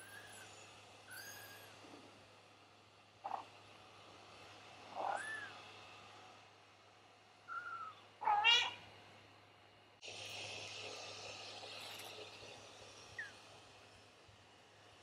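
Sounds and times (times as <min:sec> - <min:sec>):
kittens mewing: 0:07.5 - 0:08.8.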